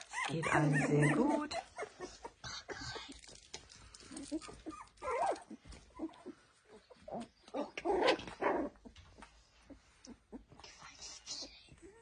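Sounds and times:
puppies whimpering and squeaking: 0:00.0 - 0:12.0.

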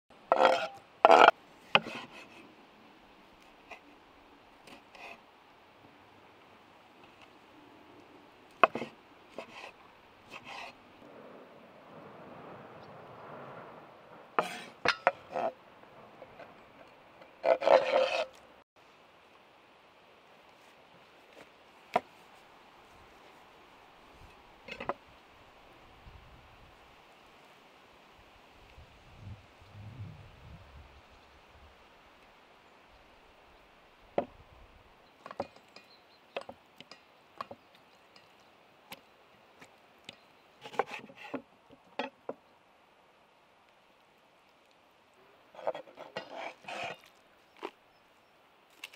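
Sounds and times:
knife scraping: 0:00.3 - 0:02.4, 0:08.6 - 0:10.8, 0:14.4 - 0:15.5, 0:17.4 - 0:18.4, 0:45.6 - 0:47.7.

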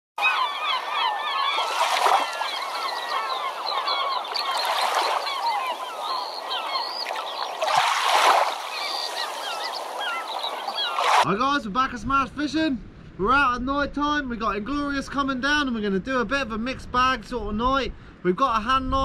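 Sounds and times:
flock of birds calling: 0:00.2 - 0:11.2.

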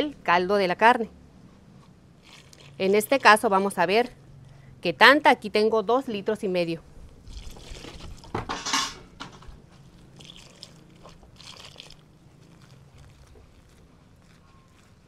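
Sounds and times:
broth pouring: 0:02.2 - 0:03.5, 0:07.0 - 0:15.0
splashing and hand mixing: 0:02.2 - 0:04.1, 0:07.0 - 0:08.5, 0:09.3 - 0:15.0.

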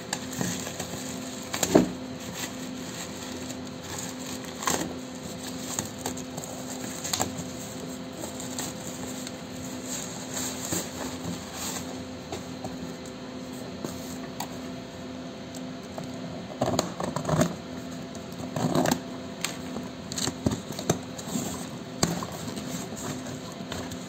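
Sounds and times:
parcel wrapping tearing and crinkling: 0:00.0 - 0:11.9.

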